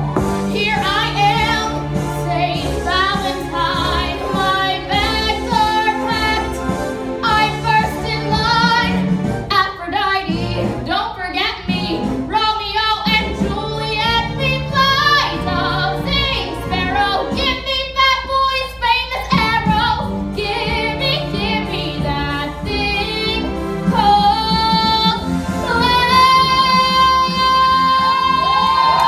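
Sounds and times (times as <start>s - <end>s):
instrumental accompaniment: 0.0s - 12.4s
woman singing: 0.5s - 6.6s, 7.2s - 29.0s.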